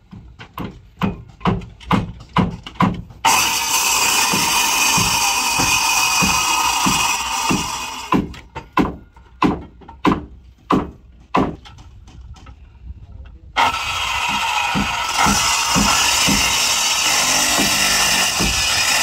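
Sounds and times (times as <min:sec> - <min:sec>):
hammer nailing wooden planks: 0:00.4 - 0:12.5, 0:14.2 - 0:19.0
power tool running: 0:03.2 - 0:08.2, 0:13.6 - 0:19.0.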